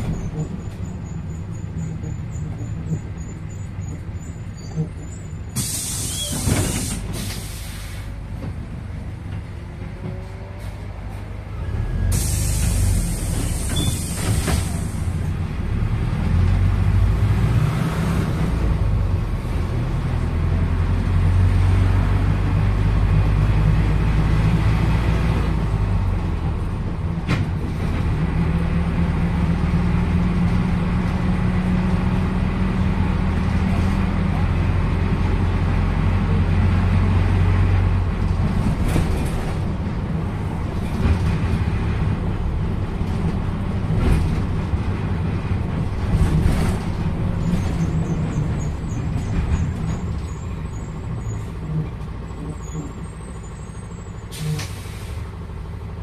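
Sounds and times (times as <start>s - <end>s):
bus diesel engine: 0.0s - 56.0s
brief hiss: 5.6s - 8.1s.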